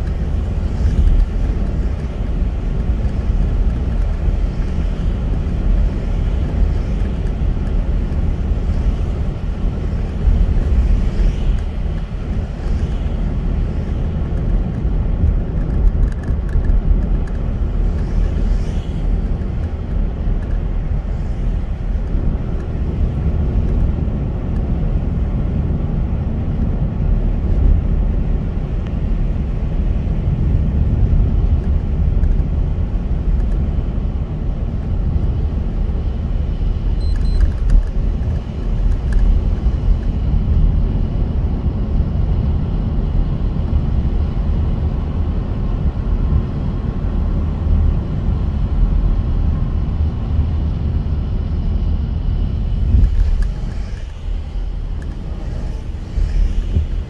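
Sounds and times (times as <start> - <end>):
car engine and tyre noise: 0.0 - 57.0
high beep: 37.0 - 37.5.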